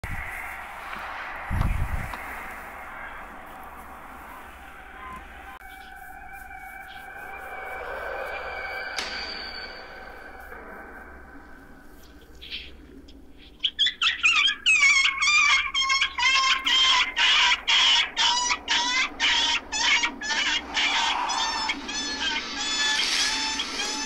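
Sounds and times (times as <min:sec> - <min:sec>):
dog yelping in pain: 0:13.8 - 0:22.2.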